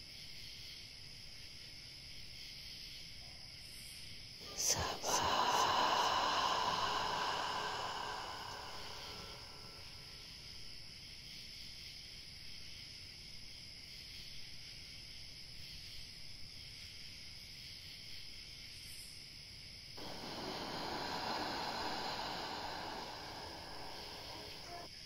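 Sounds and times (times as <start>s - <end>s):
steady low hiss: 4.4s - 10.7s, 20.0s - 25.0s
loud rushing hiss: 4.5s - 10.2s, 20.0s - 24.9s
faint high tones: 20.0s - 24.9s.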